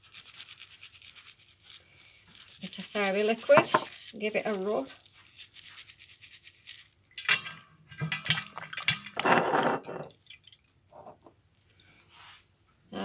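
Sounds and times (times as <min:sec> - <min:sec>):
scouring pad rubbing coin: 0:00.0 - 0:06.9
water splashing into metal bowl: 0:07.1 - 0:10.9.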